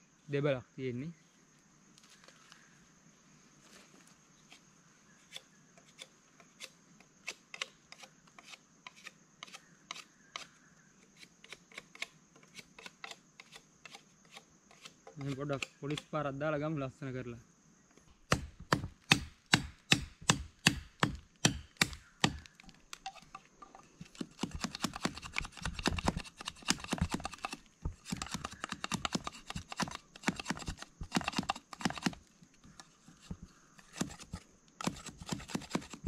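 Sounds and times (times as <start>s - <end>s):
knife chopping wood: 18.2s - 23.3s, 24.0s - 32.2s, 33.1s - 36.0s
knife shaving wood: 24.0s - 36.0s.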